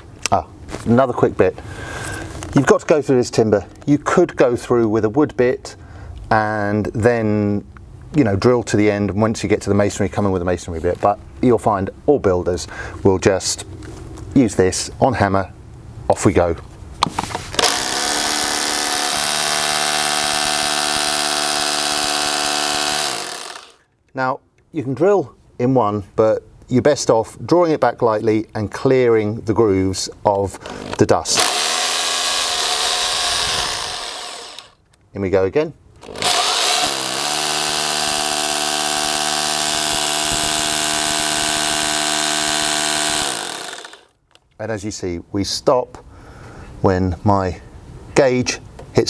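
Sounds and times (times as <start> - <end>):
hammer drill boring: 17.6 - 23.8, 30.6 - 34.8, 36.0 - 44.1.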